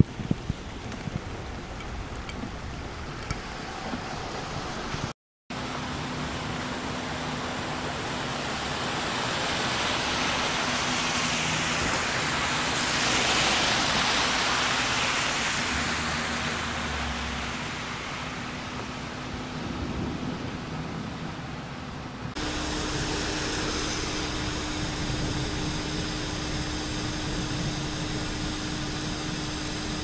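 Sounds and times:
rain hissing on flooded street: 0:00.0 - 0:30.0
vehicle engine idling: 0:21.7 - 0:30.0.

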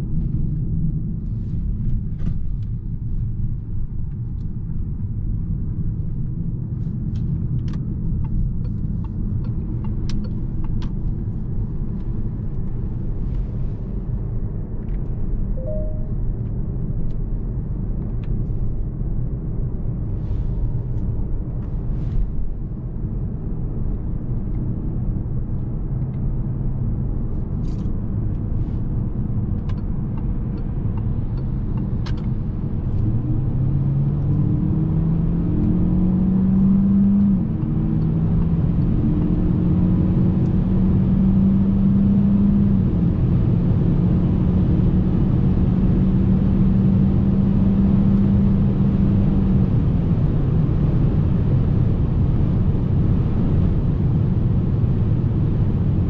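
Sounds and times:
road rumble: 0:00.0 - 0:56.0
car engine accelerating: 0:29.0 - 0:56.0.

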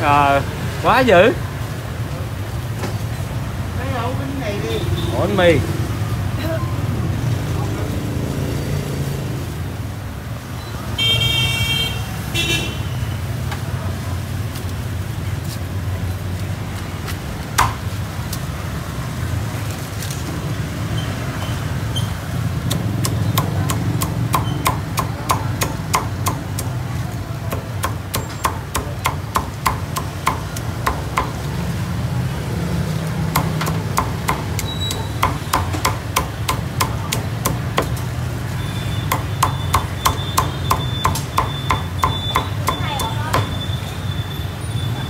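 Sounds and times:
cleaver chopping on wooden block: 0:17.6 - 0:17.9, 0:22.7 - 0:26.8, 0:27.5 - 0:31.5, 0:33.3 - 0:38.1, 0:39.0 - 0:43.5.

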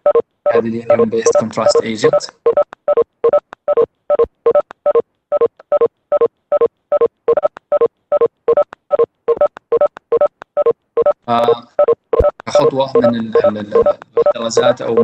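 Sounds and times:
glitching voice blips: 0:00.5 - 0:02.4, 0:11.1 - 0:15.0.

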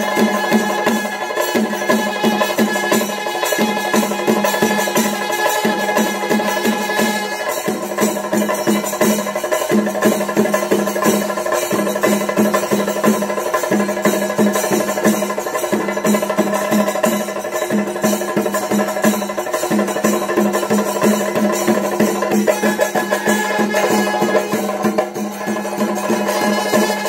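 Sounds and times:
drum strokes: 0:00.0 - 0:27.0.

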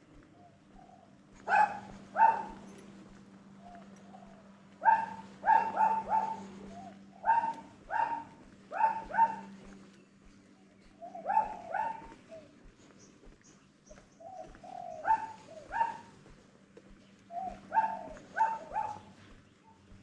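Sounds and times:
faint low hum: 0:00.0 - 0:20.0
dog barking: 0:01.4 - 0:02.8, 0:04.2 - 0:09.6, 0:11.2 - 0:12.2, 0:15.0 - 0:16.1, 0:17.3 - 0:19.1.

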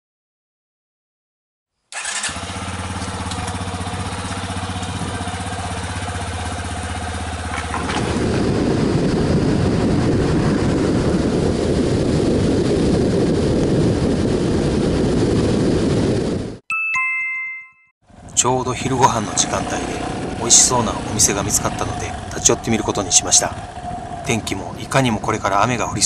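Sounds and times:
motorcycle engine idling: 0:02.0 - 0:10.2, 0:18.1 - 0:26.0
wind rushing over microphone: 0:02.6 - 0:16.6, 0:18.2 - 0:26.0.

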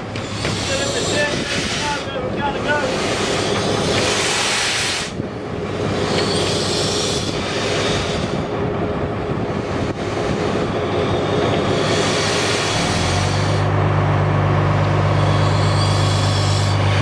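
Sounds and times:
steam hissing: 0:00.0 - 0:08.6, 0:09.4 - 0:13.7, 0:14.9 - 0:17.0
steam locomotive wheels rumbling: 0:00.0 - 0:17.0.

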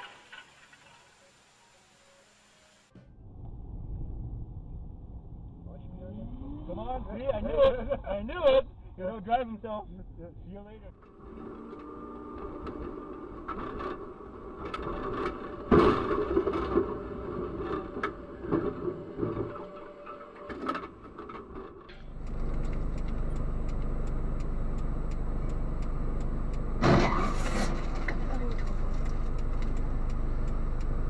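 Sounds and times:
car interior road noise: 0:10.9 - 0:31.0
vehicle crash: 0:12.3 - 0:22.2, 0:26.8 - 0:29.2.

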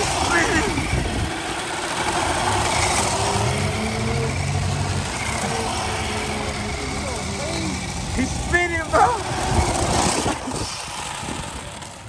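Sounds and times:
car engines idling: 0:00.0 - 0:12.0.

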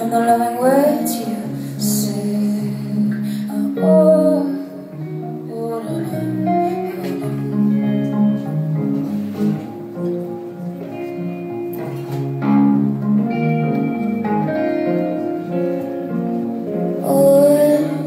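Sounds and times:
woman singing: 0:00.0 - 0:08.0, 0:16.9 - 0:18.0
plucked guitar: 0:00.0 - 0:18.0.

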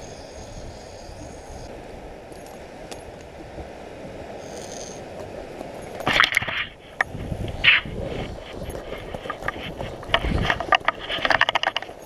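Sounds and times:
fishing reel drag screaming: 0:00.0 - 0:01.7, 0:04.4 - 0:05.0
wind: 0:00.0 - 0:12.0
surf: 0:01.4 - 0:12.0.

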